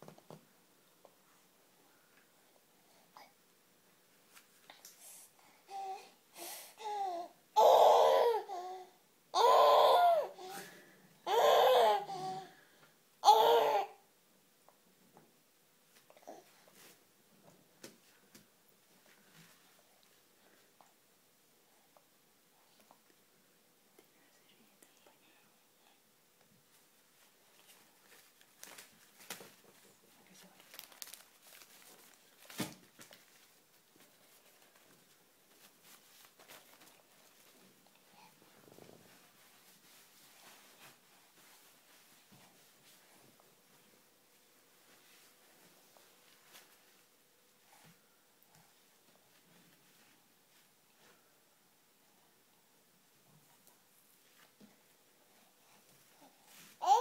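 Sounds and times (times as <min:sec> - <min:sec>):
soft rustles: 0:04.1 - 0:05.2, 0:15.8 - 0:21.0, 0:26.4 - 0:51.4, 0:53.2 - 0:57.0.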